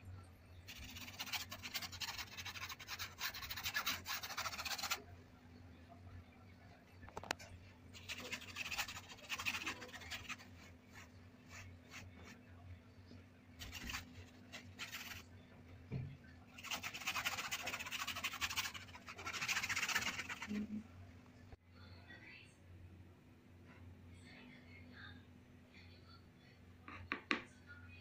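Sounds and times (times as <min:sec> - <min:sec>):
paintbrush scratching across canvas: 0:00.7 - 0:05.0, 0:07.9 - 0:12.4, 0:13.6 - 0:15.3, 0:16.6 - 0:20.7.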